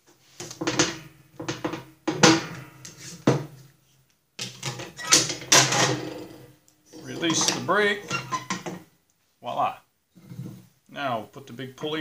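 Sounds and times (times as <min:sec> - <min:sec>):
metal parts knocking and scraping: 0:00.4 - 0:03.4, 0:04.4 - 0:08.8.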